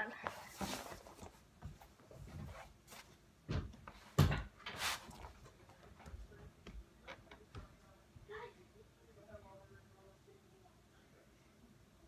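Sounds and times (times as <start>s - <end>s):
rustling: 0.1s - 6.4s.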